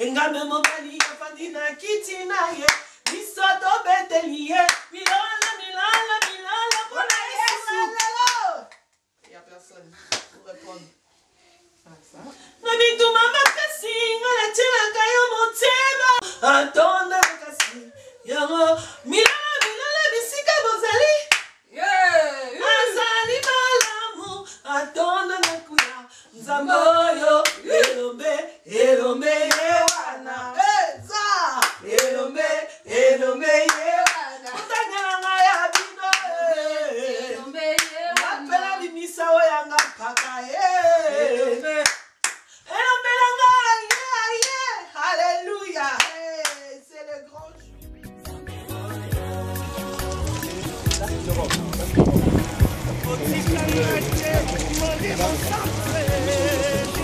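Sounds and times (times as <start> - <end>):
woman singing: 0.0 - 8.7, 12.5 - 42.0, 42.6 - 50.8, 52.5 - 57.0
sharp hand claps: 4.7 - 8.9, 21.3 - 21.6, 41.8 - 42.5
person singing: 12.7 - 21.3, 44.8 - 57.0
hand clapping in time: 21.3 - 21.6, 49.7 - 57.0.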